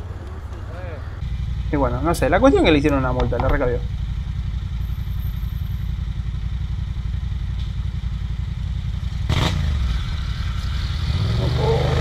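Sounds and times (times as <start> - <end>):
motorcycle engine idling: 0.0 - 11.8.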